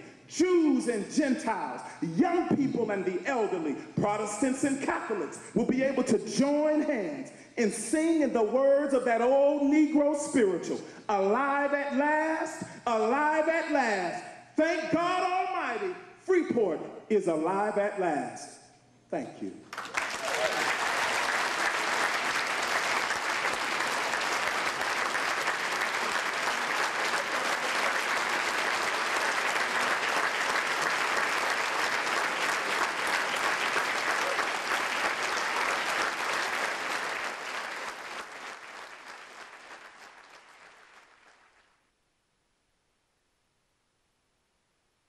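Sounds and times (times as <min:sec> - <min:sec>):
audience applauding: 0:19.7 - 0:41.8.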